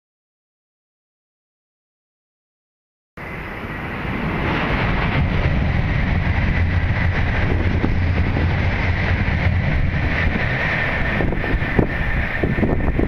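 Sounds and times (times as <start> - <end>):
high-speed train passing: 3.2 - 13.0.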